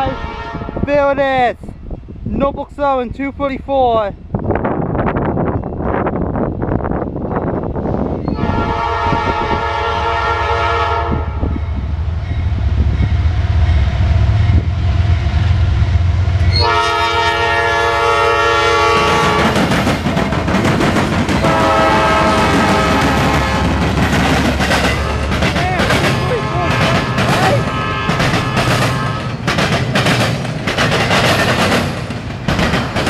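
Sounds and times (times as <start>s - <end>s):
locomotive air horn: 0.0s - 0.8s, 8.4s - 11.6s, 16.5s - 19.6s, 21.4s - 23.8s, 26.3s - 29.4s
train wheels on rails: 4.8s - 33.0s
diesel engines rumbling: 11.3s - 33.0s.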